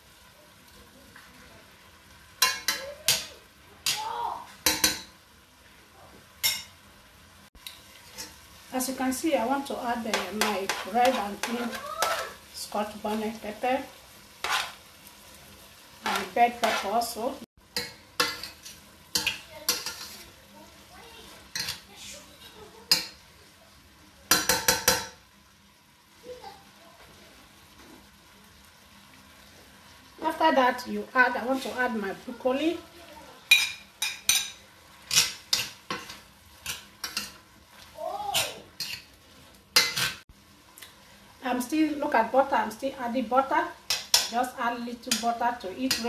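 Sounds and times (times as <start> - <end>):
food sizzling in butter: 0.0 - 46.0
metal spoon scraping pot: 10.1 - 12.4, 14.4 - 14.8, 16.0 - 17.1, 18.2 - 20.3.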